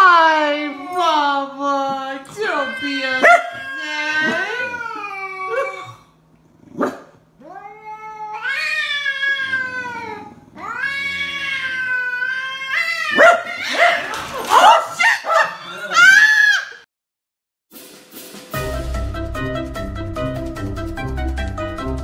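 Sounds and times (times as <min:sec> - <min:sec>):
cat yowling: 0:02.3 - 0:06.0, 0:07.4 - 0:16.8.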